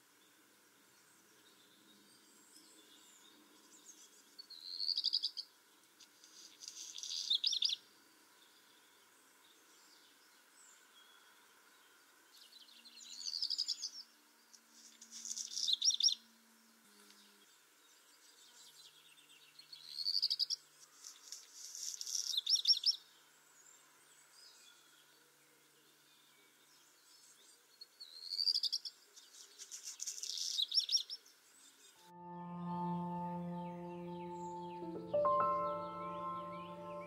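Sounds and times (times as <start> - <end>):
bird singing: 30.3 - 37.0.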